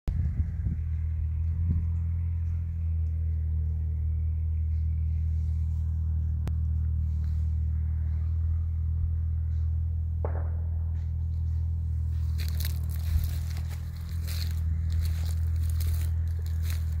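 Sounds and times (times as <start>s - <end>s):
low rumble: 0.1s - 17.0s
crackling crunching noise: 11.0s - 17.0s.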